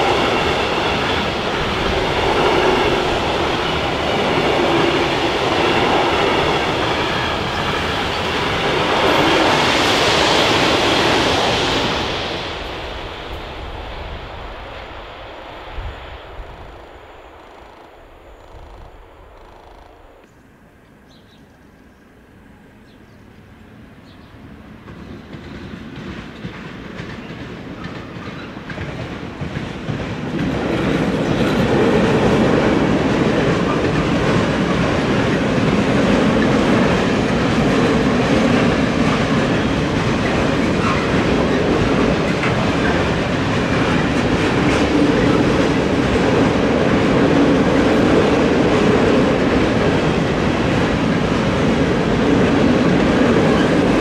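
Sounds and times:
freight train rumbling past: 0.0 - 54.0
wheels clattering on rails: 24.8 - 54.0.

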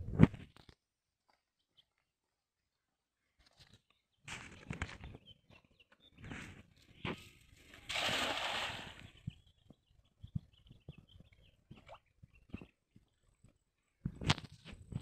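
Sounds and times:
cast net splashing into water: 7.9 - 9.1.

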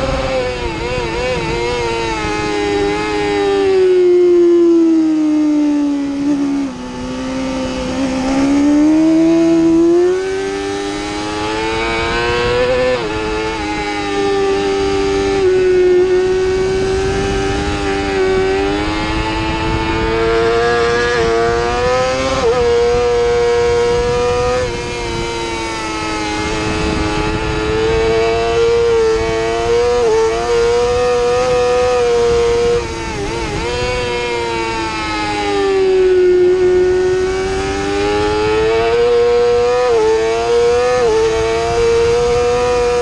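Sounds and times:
motorcycle engine revving hard: 0.0 - 43.0
wind rushing: 0.0 - 43.0.

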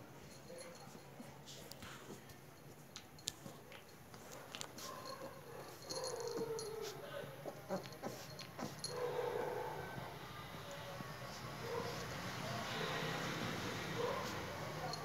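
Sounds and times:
puppy whining: 6.0 - 10.1.

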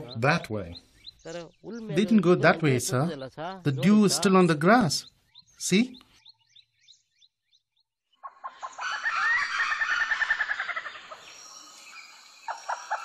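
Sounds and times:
faint high bird chirps: 0.0 - 13.0
rapid fowl-like bird call: 8.2 - 11.4, 12.5 - 13.0.

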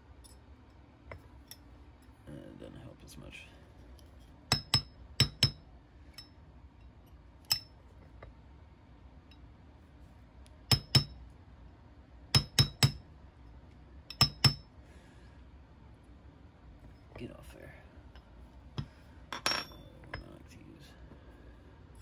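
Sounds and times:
hammer tapping metal punch: 4.5 - 5.6, 10.7 - 11.2, 12.3 - 13.0, 14.1 - 14.6.

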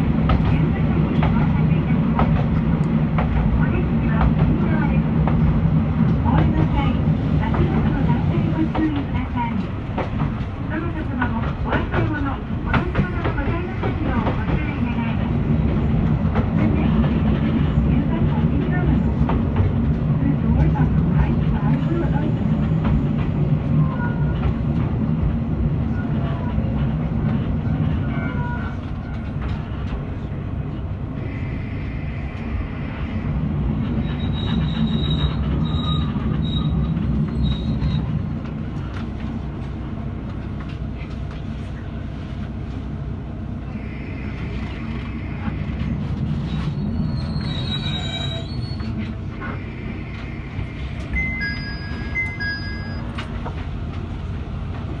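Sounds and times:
diesel railcar engine running: 0.0 - 55.0
high squealing wheels: 33.9 - 38.2, 43.7 - 53.2.

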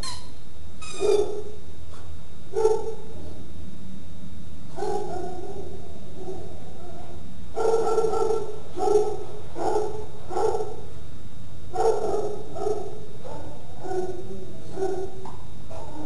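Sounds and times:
puppies barking: 4.8 - 10.8, 11.8 - 16.0.

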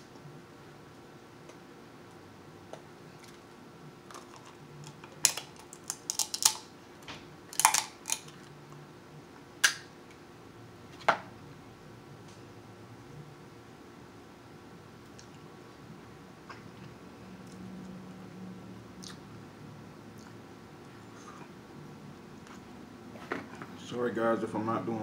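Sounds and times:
crab shells snapping: 4.1 - 6.6, 7.5 - 8.3.

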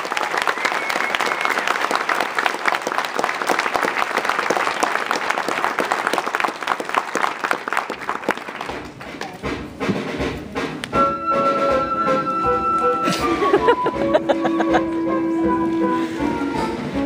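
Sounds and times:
crowd applauding: 0.0 - 9.4, 11.8 - 15.7.

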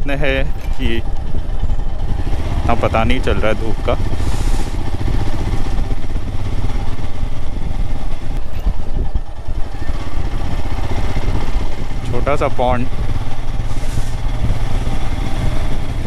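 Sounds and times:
motorcycle engine thumping: 0.5 - 16.0.

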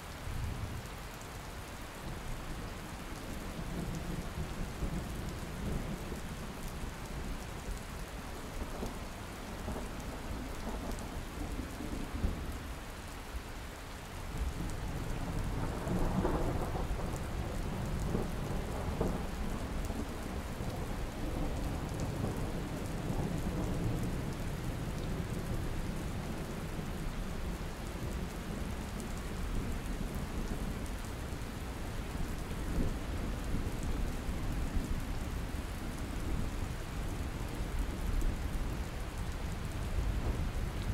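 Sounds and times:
rain on pavement and rooftops: 0.0 - 40.9.

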